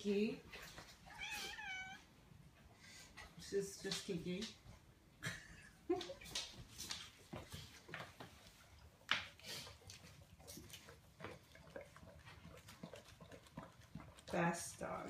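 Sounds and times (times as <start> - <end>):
dog licking and chewing: 6.2 - 15.0.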